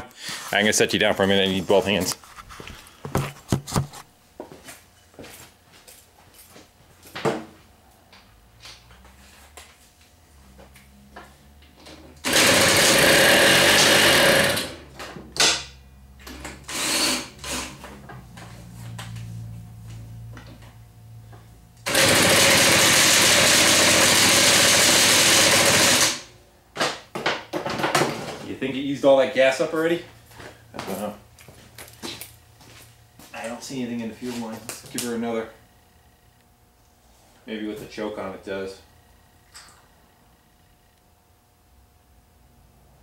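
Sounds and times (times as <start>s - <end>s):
moped engine revving: 12.2s - 14.8s, 21.8s - 26.2s.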